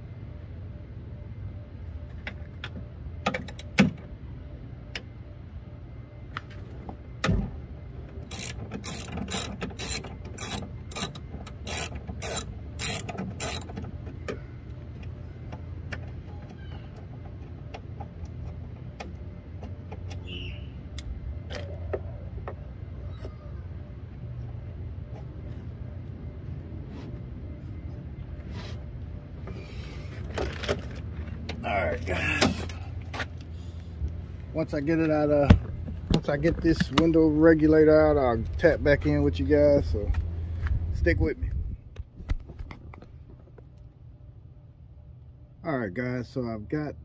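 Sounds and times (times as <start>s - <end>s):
ratchet wrench clicking: 8.3s - 13.8s.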